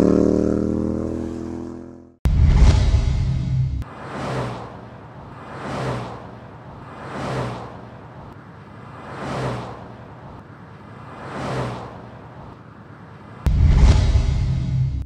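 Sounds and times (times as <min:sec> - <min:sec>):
sudden loud burst: 0:02.3 - 0:03.8.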